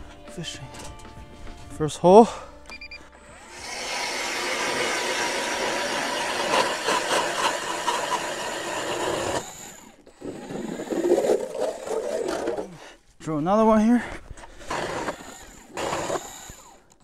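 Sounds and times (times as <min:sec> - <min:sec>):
ice auger motor whine: 0:02.6 - 0:12.8, 0:14.4 - 0:17.0
blades grinding ice: 0:03.3 - 0:12.8, 0:14.5 - 0:16.9.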